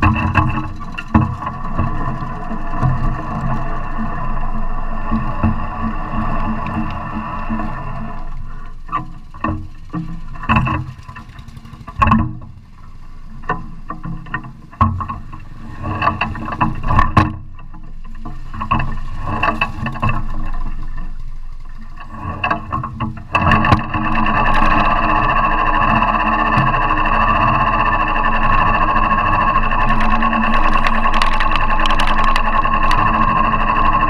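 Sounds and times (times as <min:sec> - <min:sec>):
knocks and rattles: 0:08.8 - 0:12.6, 0:29.9 - 0:34.0.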